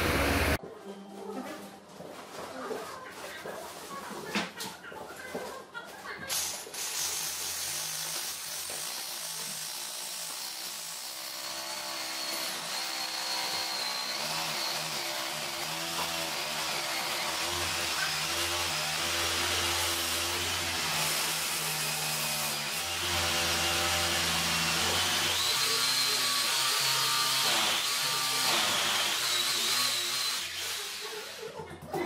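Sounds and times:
electric drill boring into tile: 0:06.8 - 0:31.4.

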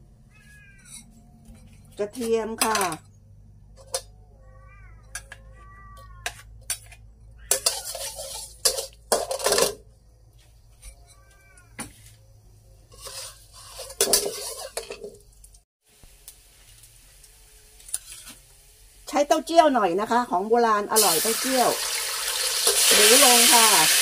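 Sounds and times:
metal spatula scraping wok: 0:00.5 - 0:03.1, 0:06.2 - 0:09.9, 0:12.8 - 0:15.2, 0:17.8 - 0:18.4
garlic sizzling in oil: 0:12.9 - 0:24.0.

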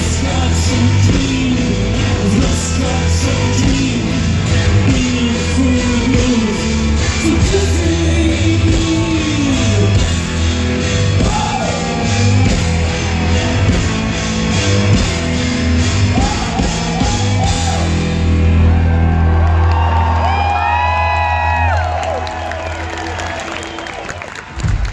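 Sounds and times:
man singing: 0:00.0 - 0:10.5
live rock band playing: 0:00.0 - 0:20.2.

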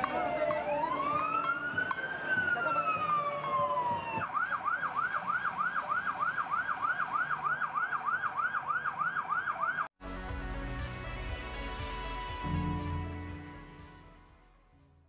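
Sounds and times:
police siren yelping: 0:00.0 - 0:09.9
music: 0:10.0 - 0:15.0.

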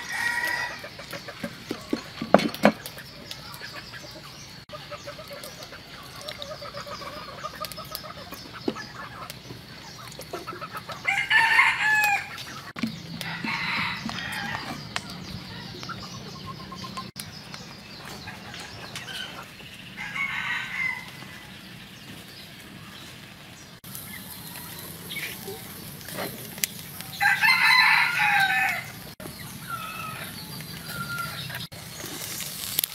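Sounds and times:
rooster crowing: 0:00.0 - 0:00.8, 0:11.1 - 0:12.3, 0:13.2 - 0:14.8, 0:20.0 - 0:21.5, 0:27.1 - 0:29.0
chickens clucking: 0:00.0 - 0:32.3.

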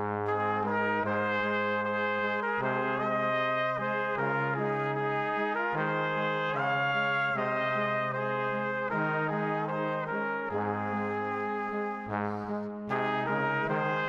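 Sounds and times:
brass ensemble playing chords: 0:00.0 - 0:14.0.

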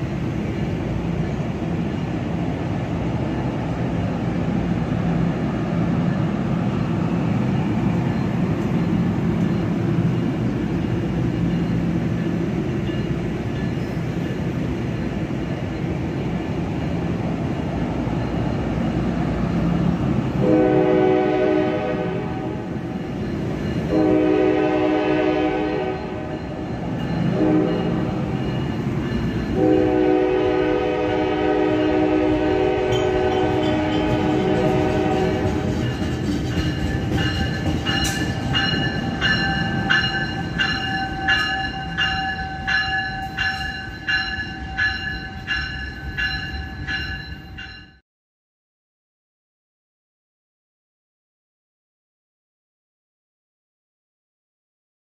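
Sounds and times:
train wheels rumbling on rail: 0:00.0 - 0:48.0
train horn blasts: 0:20.4 - 0:22.7, 0:23.9 - 0:26.6, 0:27.3 - 0:28.2, 0:29.6 - 0:35.8.

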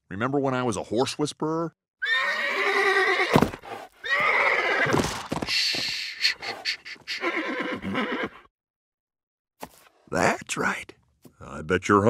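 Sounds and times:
horse whinnying: 0:02.0 - 0:08.5
hoof stomps: 0:03.3 - 0:04.0, 0:04.8 - 0:06.6.

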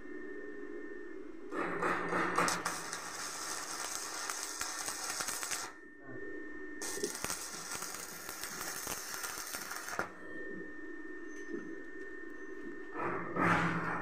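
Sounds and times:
welding arc crackling: 0:02.3 - 0:05.8, 0:06.8 - 0:10.2.

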